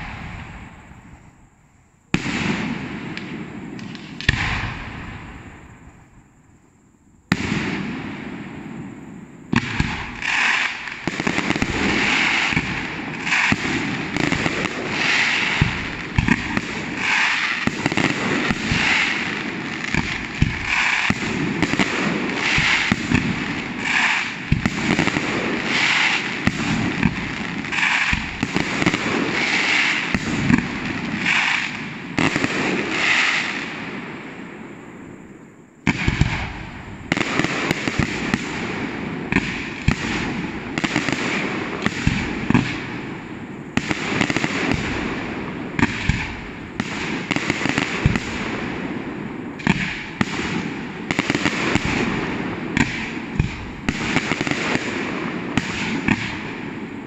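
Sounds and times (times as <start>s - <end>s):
firework barrage crackling: 0.0s - 6.5s, 7.2s - 57.0s
firework shells bursting: 9.6s - 33.5s.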